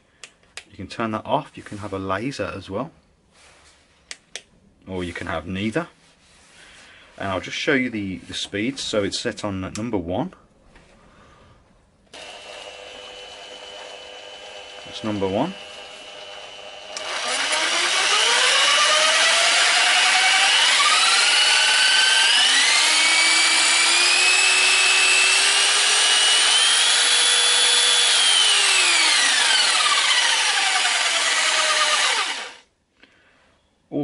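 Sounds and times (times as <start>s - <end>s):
jigsaw motor whine: 12.2s - 32.6s.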